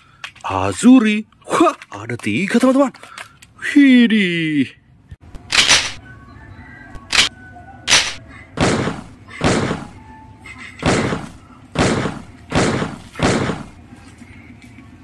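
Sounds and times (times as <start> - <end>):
toy gun bangs: 5.5 - 6.0, 7.9 - 10.0.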